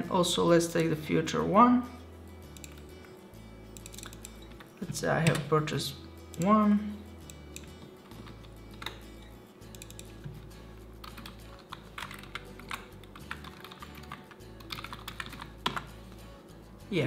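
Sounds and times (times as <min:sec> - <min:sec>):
quiet background music: 0:00.0 - 0:17.0
keyboard typing: 0:02.5 - 0:05.5, 0:07.2 - 0:15.9.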